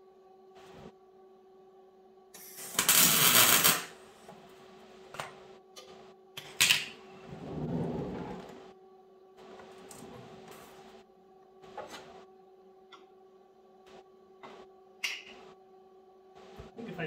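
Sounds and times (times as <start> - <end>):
welder tack-welding: 2.4 - 3.9.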